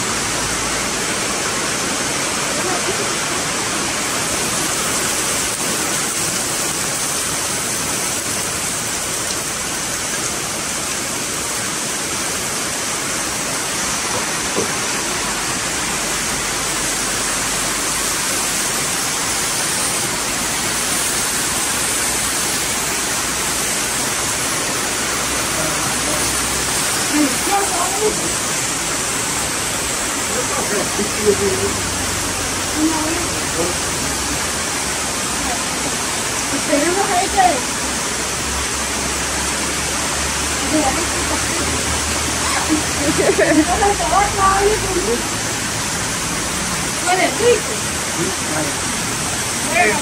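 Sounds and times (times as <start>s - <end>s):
tomatoes sizzling in a frying pan: 13.9s - 39.6s.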